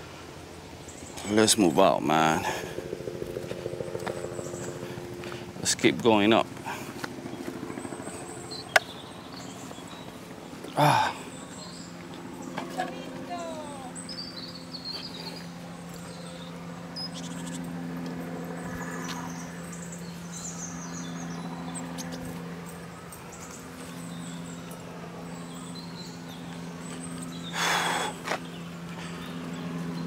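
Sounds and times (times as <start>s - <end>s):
steady low hum: 0.0s - 30.0s
bird chirps: 7.3s - 10.2s, 11.2s - 17.8s, 18.6s - 22.4s.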